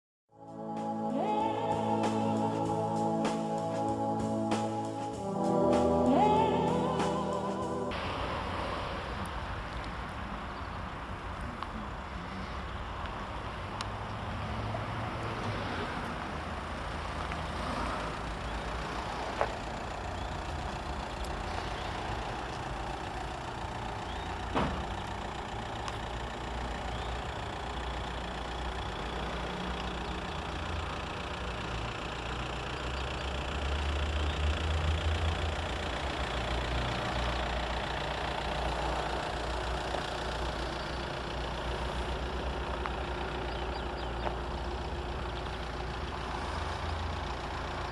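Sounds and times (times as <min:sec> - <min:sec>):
car engine idling: 0:16.1 - 0:47.9.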